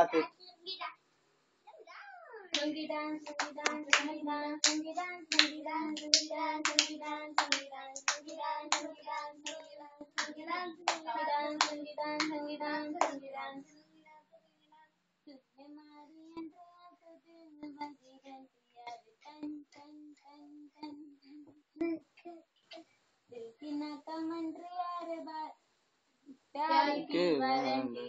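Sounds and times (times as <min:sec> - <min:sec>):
hand claps: 0:02.6 - 0:12.4, 0:13.0 - 0:13.2.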